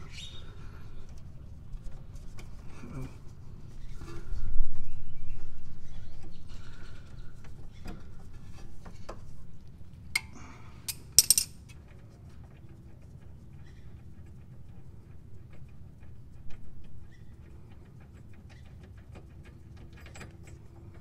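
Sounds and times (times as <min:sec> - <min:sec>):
metal tools clinking: 0:10.9 - 0:11.6.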